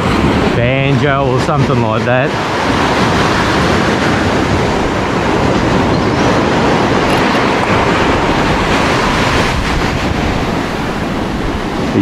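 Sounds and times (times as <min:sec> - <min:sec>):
surf rushing: 0:00.0 - 0:12.0
wind buffeting microphone: 0:00.0 - 0:12.0.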